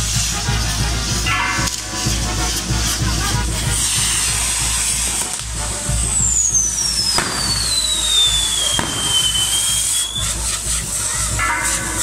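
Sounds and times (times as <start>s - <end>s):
fireworks hissing: 0.0s - 12.0s
falling firework whistle: 1.5s - 12.0s
sharp firework cracks: 3.7s - 11.1s.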